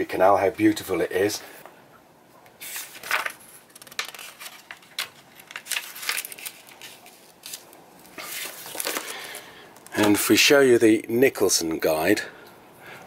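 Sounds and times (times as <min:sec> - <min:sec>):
paper pages rustling: 0:02.6 - 0:10.2.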